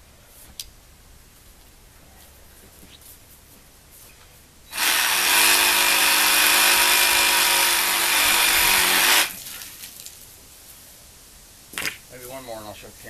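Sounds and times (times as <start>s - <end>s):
electric motor running: 4.7s - 9.4s.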